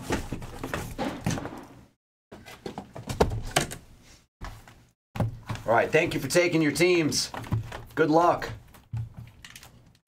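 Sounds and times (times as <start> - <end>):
cardboard boxes thunking: 2.4 - 3.8.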